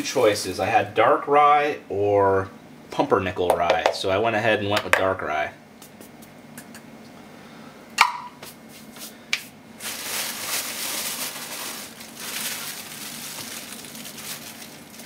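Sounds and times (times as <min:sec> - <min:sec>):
metal cup knocking metal pan: 0:08.0 - 0:08.4
plastic bag crinkling: 0:09.8 - 0:15.0.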